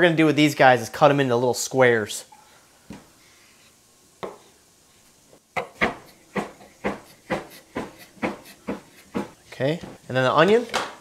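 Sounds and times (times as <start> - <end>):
knock: 5.6 - 9.3
knife chopping on cutting board: 5.6 - 10.0.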